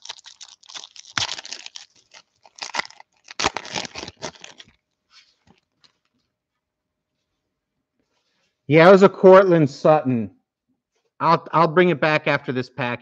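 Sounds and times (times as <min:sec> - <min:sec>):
foil wrapper tearing and crinkling: 0:00.0 - 0:06.1.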